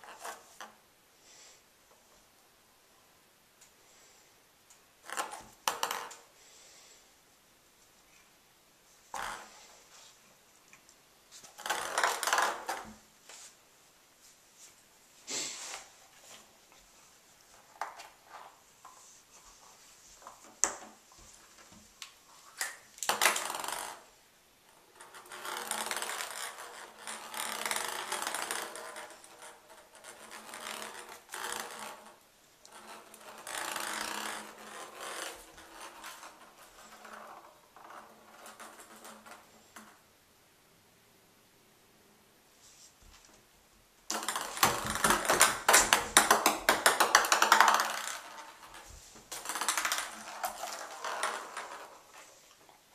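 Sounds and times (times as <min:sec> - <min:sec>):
ball rolling in bathtub: 0:44.1 - 0:52.9.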